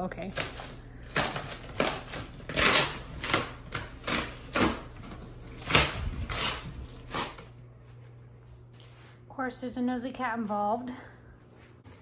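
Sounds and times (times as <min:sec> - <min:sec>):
packing tape ripping off box: 0:00.3 - 0:07.6.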